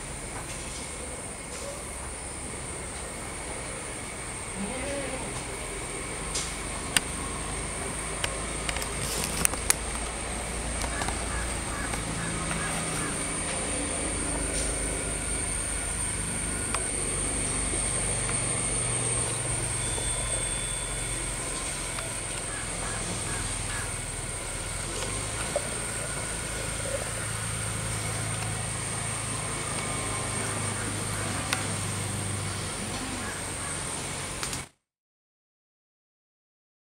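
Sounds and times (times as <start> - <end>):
low hum: 0.0 - 34.5
thin high-pitched whine: 0.0 - 34.6
faint clicks: 10.8 - 13.6.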